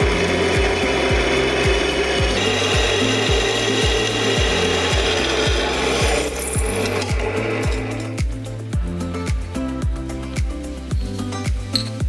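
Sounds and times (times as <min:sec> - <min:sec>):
drill bit grinding into steel: 0:00.0 - 0:08.2
music with kick drum and bass: 0:00.0 - 0:12.0.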